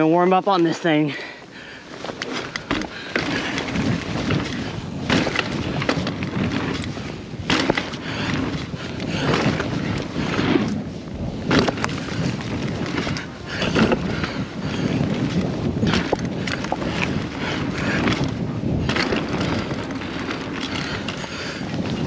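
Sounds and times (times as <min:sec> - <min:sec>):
bike knocking and rattling: 0:00.0 - 0:22.0
bike tyres rolling on dirt: 0:00.0 - 0:22.0.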